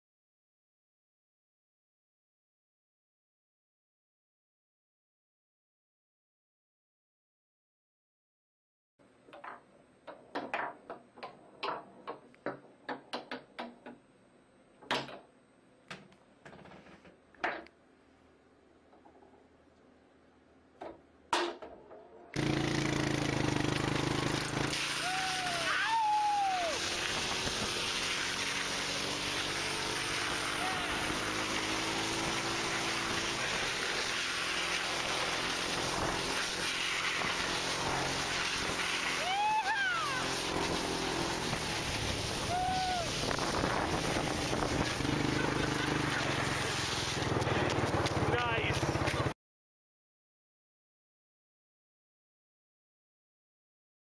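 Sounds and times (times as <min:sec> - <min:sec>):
foosball knocks and clicks: 0:09.2 - 0:14.0
wind buffeting microphone: 0:43.1 - 0:45.1
sliding scrape on ice: 0:45.6 - 0:47.5.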